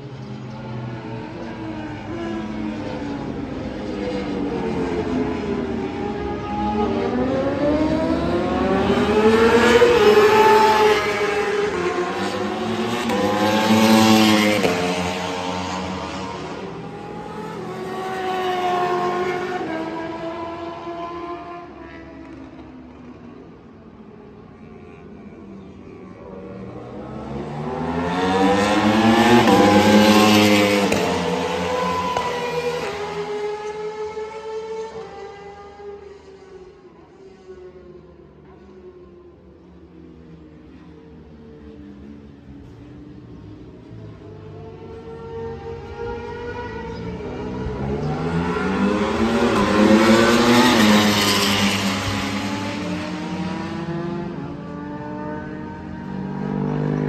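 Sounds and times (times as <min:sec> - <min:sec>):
motorcycle accelerating: 0:03.7 - 0:23.1, 0:26.3 - 0:36.2, 0:44.0 - 0:57.0.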